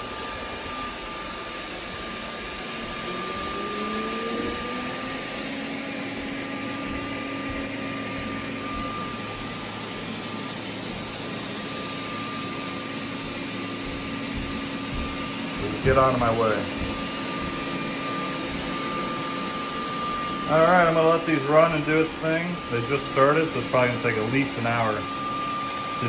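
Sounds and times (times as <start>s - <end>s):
robot vacuum whirring: 0.0s - 26.0s
motor tone rising in pitch: 2.2s - 22.3s.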